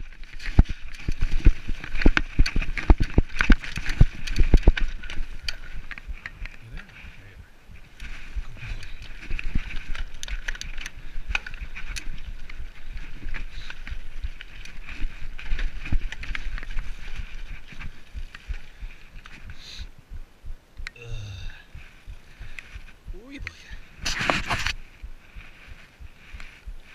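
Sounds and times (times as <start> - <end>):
tyre and wind rumble: 0.0 - 26.9
bike clattering over rocks: 0.1 - 6.4.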